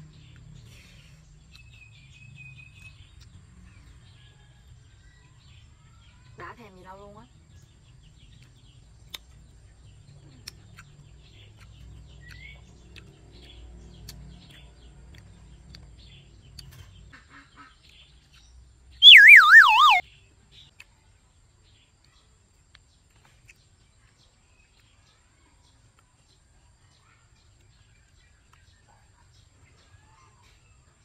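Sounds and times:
faint bird chirps: 19.0s - 20.0s
warbling whistle sliding down: 19.0s - 20.0s.

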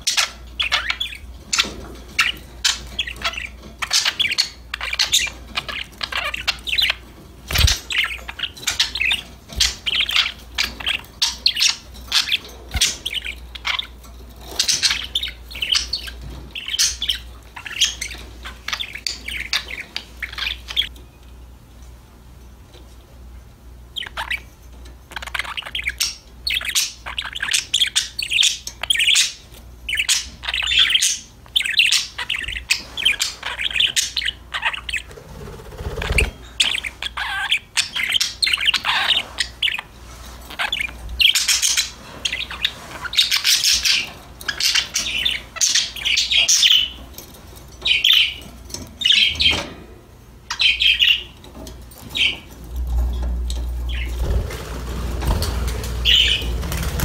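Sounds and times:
budgerigars chattering: 0.0s - 20.9s, 24.0s - 24.5s, 25.1s - 47.1s, 47.8s - 49.6s, 50.5s - 51.4s, 53.8s - 57.0s.

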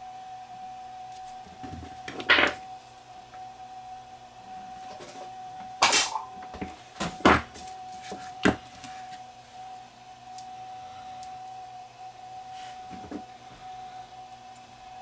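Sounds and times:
faint steady tone: 0.0s - 15.0s
spot welder snap: 5.8s - 6.3s.

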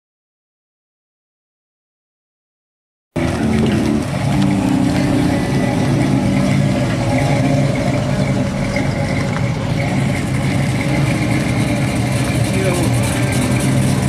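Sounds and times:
car engines running at low speed: 3.2s - 14.0s.

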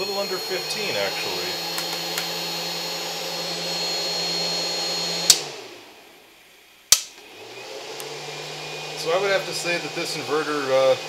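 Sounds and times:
inverter winding down: 0.0s - 5.9s
switch clicking: 1.7s - 2.4s, 6.9s - 7.2s.

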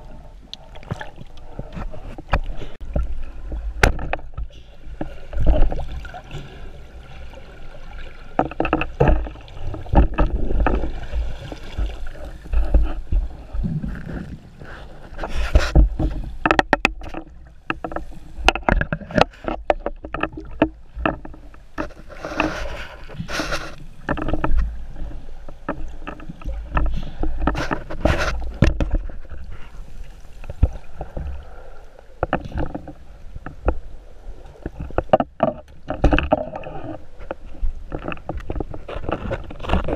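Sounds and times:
water sloshing around camera housing: 8.3s - 24.7s
handling knocks and clicks: 15.5s - 24.7s.

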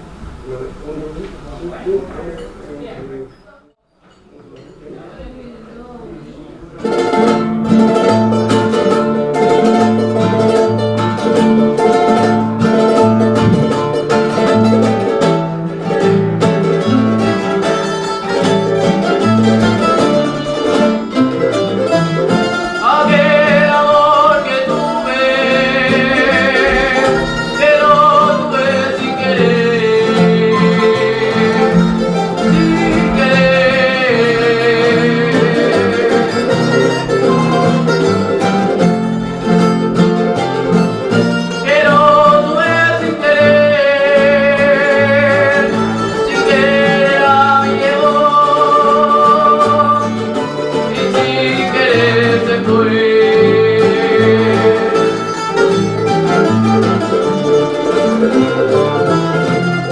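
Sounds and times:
strummed guitars: 6.6s - 59.9s
person singing: 22.2s - 38.8s, 41.1s - 55.7s.

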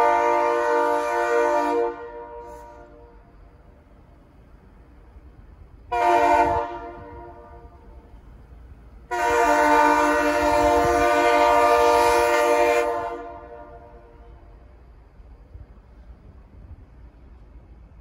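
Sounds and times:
locomotive air horn blasts: 0.0s - 3.2s, 5.9s - 8.0s, 9.1s - 14.5s.

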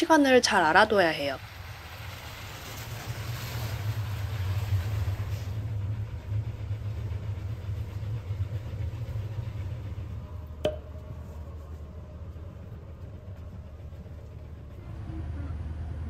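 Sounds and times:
bus diesel engine idling: 4.2s - 16.0s.

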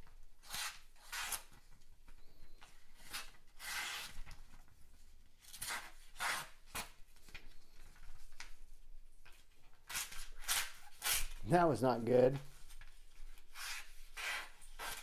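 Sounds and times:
knife cutting paper: 9.8s - 11.4s, 13.3s - 15.0s.

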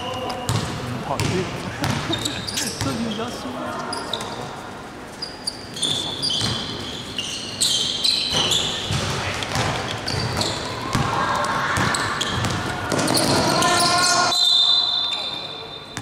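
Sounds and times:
sneakers squeaking on court floor: 0.0s - 16.0s
basketball bouncing: 0.5s - 2.2s, 8.3s - 11.2s, 11.8s - 13.6s.

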